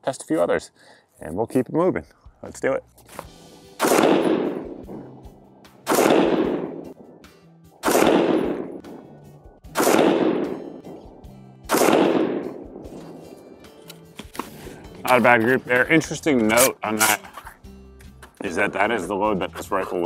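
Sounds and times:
rifle shots with echo: 3.8s - 7.2s, 7.8s - 13.5s.

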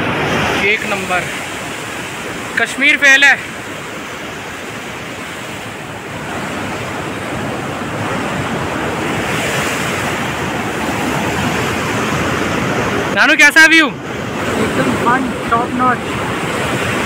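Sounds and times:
river rushing over boulders: 0.0s - 17.0s.

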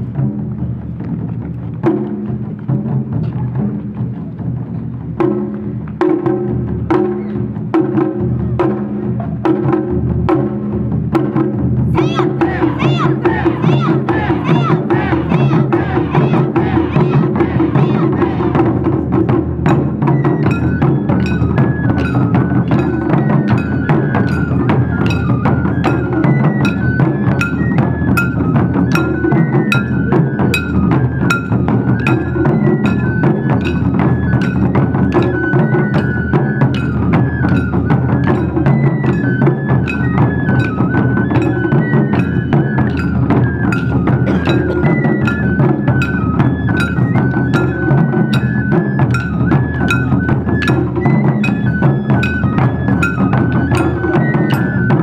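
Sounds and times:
taiko drums beating: 0.0s - 55.0s
bamboo flute melody: 11.8s - 55.0s.

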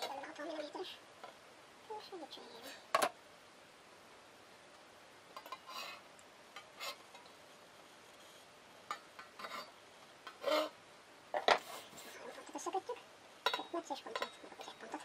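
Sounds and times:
metal points scraping steel bowl: 9.2s - 10.8s, 13.4s - 15.0s.

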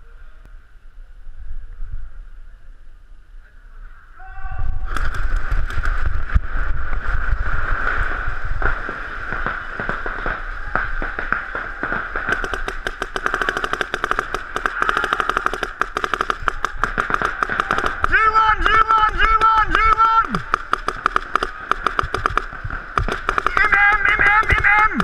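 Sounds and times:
low rumble: 0.0s - 11.1s
paintball markers firing: 10.7s - 25.0s.

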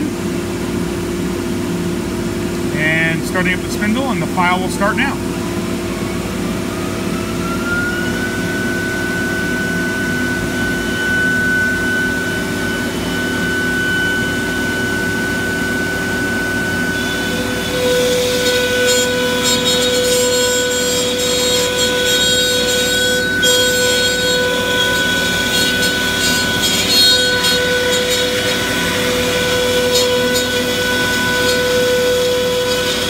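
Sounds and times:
router spindle whine: 0.0s - 33.0s
vacuum pump hum: 0.0s - 33.0s
router bit cutting plywood: 6.7s - 33.0s.

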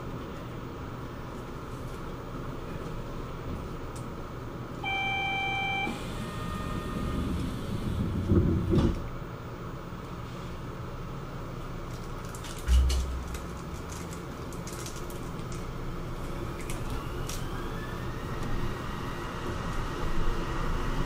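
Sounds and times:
train car hum: 0.0s - 21.0s
train doors sliding shut: 5.8s - 9.0s, 12.6s - 13.8s
faint tone: 12.7s - 13.7s.

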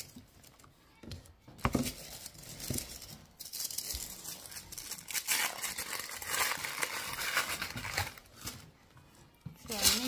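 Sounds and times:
packaging crinkling: 1.8s - 8.7s.

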